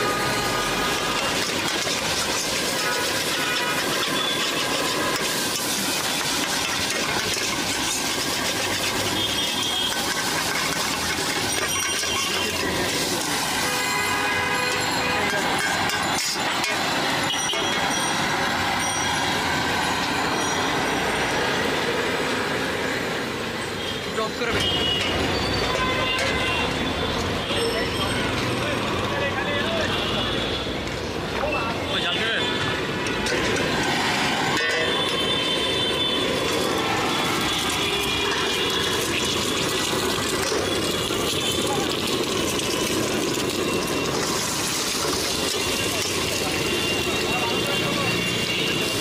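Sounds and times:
gas burner flame roaring: 0.0 - 20.2, 32.8 - 49.0
egg frying in oil: 0.8 - 17.1, 36.0 - 47.3
metal spatula scraping a wok: 0.8 - 17.8
loud rushing noise: 32.4 - 49.0.

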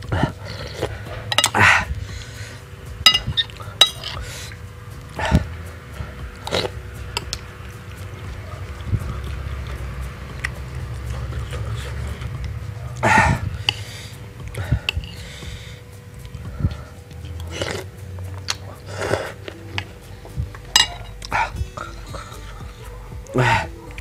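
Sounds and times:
mouth eating noises: 0.0 - 24.0
metal spoon clinking glass bowl: 1.3 - 1.6, 3.0 - 4.2, 20.6 - 22.5.

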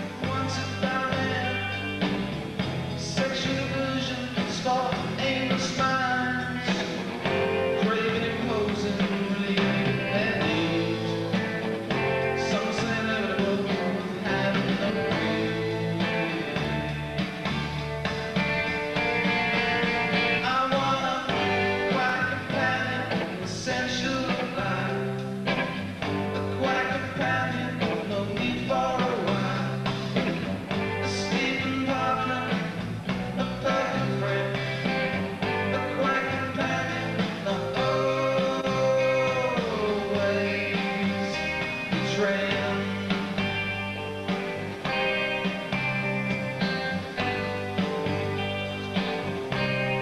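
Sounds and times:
person singing: 0.0 - 2.1, 3.0 - 16.6, 19.5 - 25.6, 26.4 - 43.7
drums: 0.0 - 50.0
electric guitar: 0.0 - 50.0.

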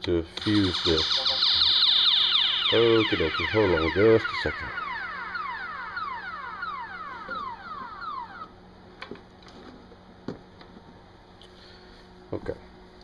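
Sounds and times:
siren-like alarm sweeps: 0.4 - 8.9.

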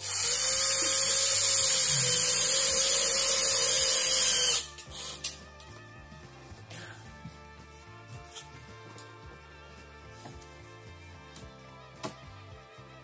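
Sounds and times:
cordless drill running: 0.0 - 5.2.

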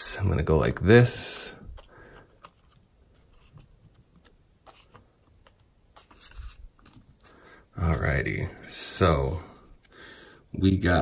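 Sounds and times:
trading cards tapping and rustling: 1.6 - 10.0.

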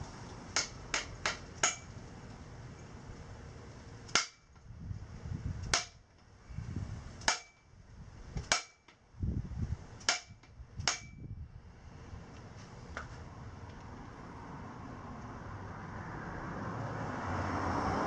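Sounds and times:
mallet striking pipe: 7.3 - 7.6, 10.0 - 11.2.

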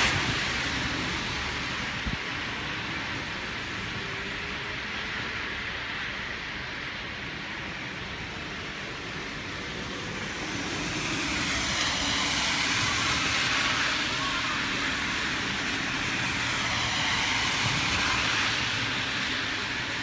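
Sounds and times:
car tyres swishing on wet street: 0.0 - 20.0.

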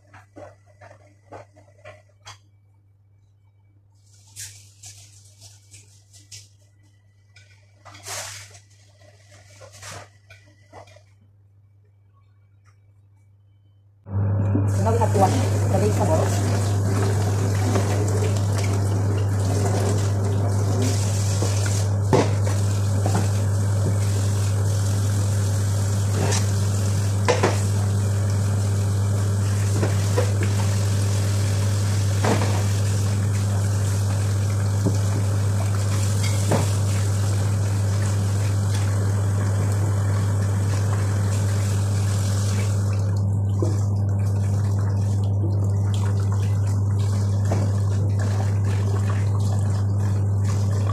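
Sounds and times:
dishes clinking against sink: 36.2 - 36.8.

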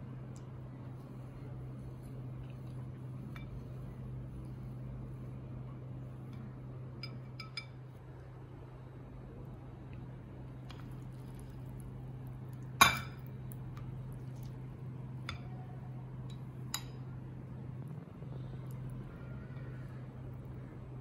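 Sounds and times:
ceramic bowls clinking: 12.8 - 13.3.

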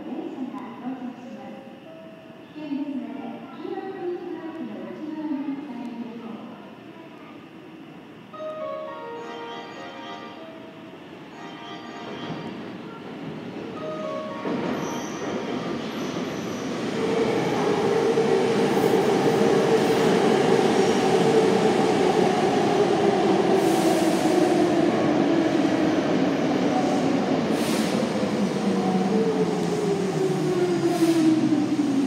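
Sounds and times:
rumble of wheels on rail: 12.1 - 32.0.

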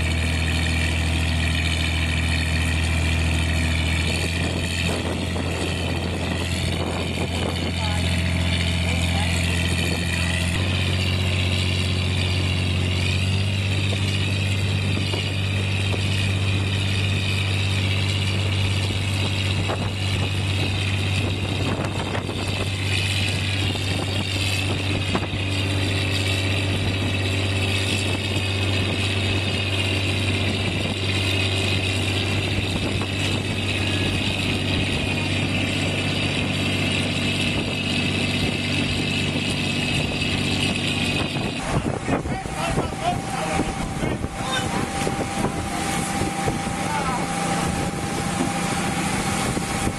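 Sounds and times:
tractor engine running under load: 0.0 - 49.9.

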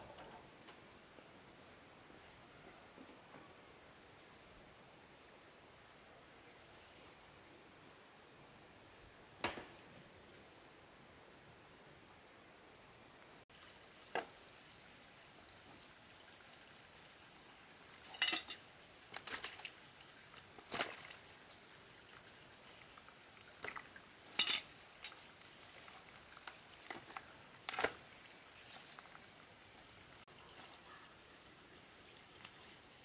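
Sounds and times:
pots and utensils clinking: 18.0 - 18.6, 24.3 - 25.2.

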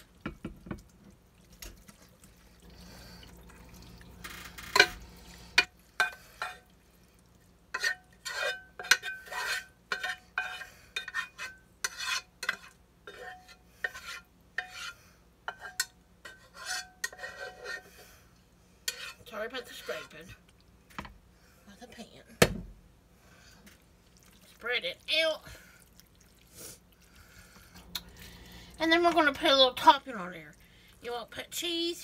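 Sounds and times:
utensil scraping a saucepan: 4.2 - 6.7, 7.7 - 18.2, 18.8 - 20.4, 27.2 - 31.8.

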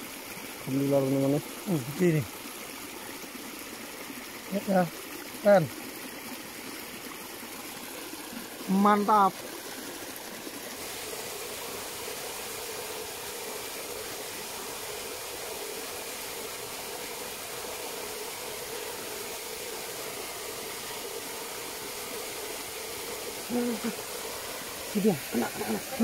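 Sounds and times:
steady hiss: 10.7 - 26.0.

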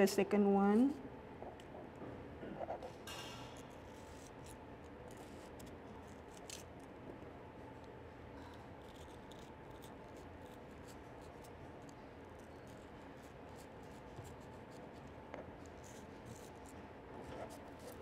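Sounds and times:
knife scratching watermelon rind: 3.4 - 6.9, 8.4 - 18.0.

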